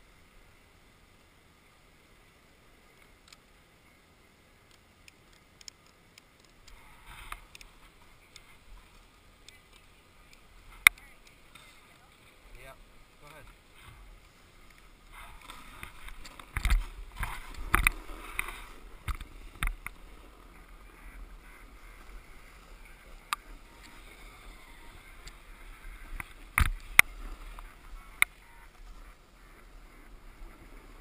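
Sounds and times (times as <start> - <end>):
gear rustling on snow: 6.5 - 31.0.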